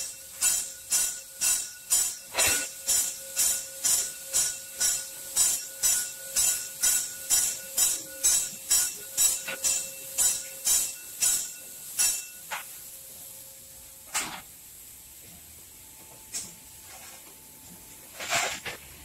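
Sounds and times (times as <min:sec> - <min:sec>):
steam locomotive hissing: 0:00.0 - 0:19.0.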